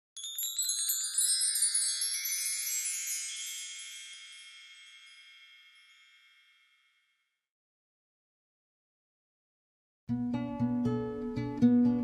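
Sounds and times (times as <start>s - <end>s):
bright chime cascade: 0.2s - 7.2s.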